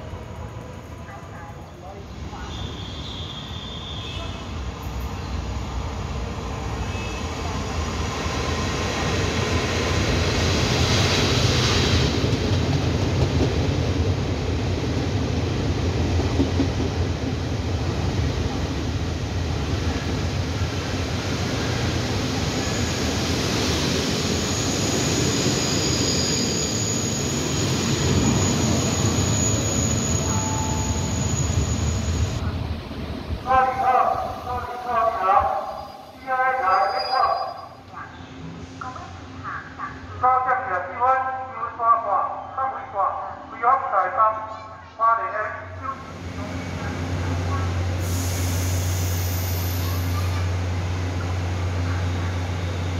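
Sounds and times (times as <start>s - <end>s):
train wheels rumbling on rails: 6.3s - 33.5s
thin high squeal: 25.6s - 32.4s.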